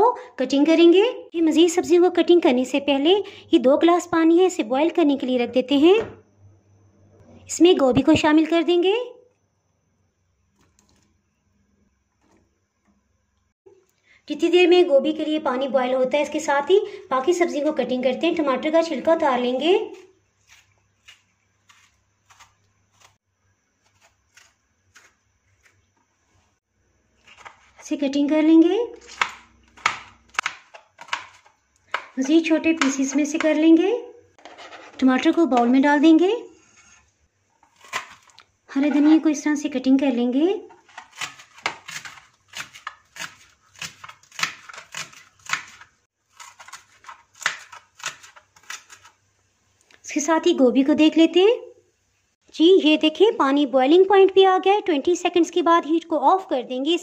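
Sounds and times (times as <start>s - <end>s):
knife chopping on plastic board: 29.1s - 33.6s, 40.9s - 45.8s, 46.4s - 49.1s
knife on plastic cutting board: 34.4s - 35.0s, 36.5s - 39.2s.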